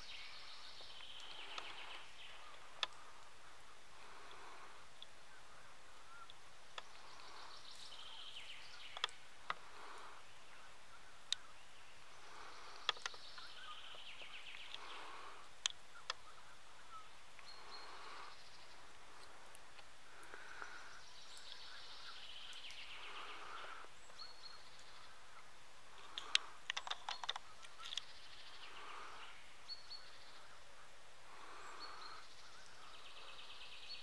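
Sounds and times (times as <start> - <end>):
sharp clicks: 8.9 - 9.6, 12.7 - 13.2, 26.0 - 28.1.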